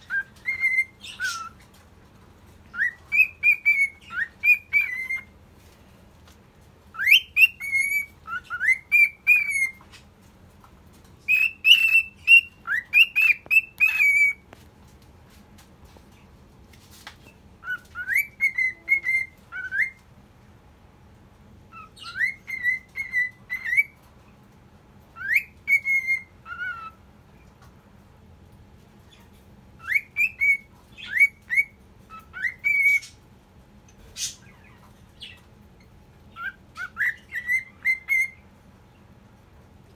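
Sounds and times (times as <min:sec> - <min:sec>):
cockatiel whistling: 0:00.0 - 0:01.6, 0:02.7 - 0:05.3, 0:06.9 - 0:09.9, 0:11.3 - 0:14.5, 0:17.6 - 0:20.0, 0:21.7 - 0:24.0, 0:25.2 - 0:27.0, 0:29.8 - 0:33.2, 0:36.3 - 0:38.4.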